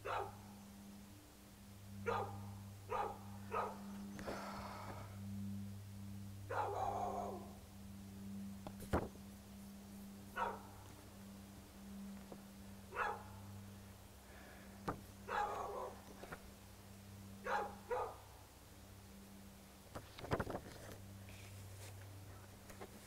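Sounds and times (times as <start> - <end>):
dog barking: 0.0 - 0.4, 2.0 - 3.9, 6.5 - 7.4, 10.4 - 10.7, 12.9 - 13.3, 15.3 - 16.0, 17.4 - 18.2
steady low hum: 0.0 - 23.0.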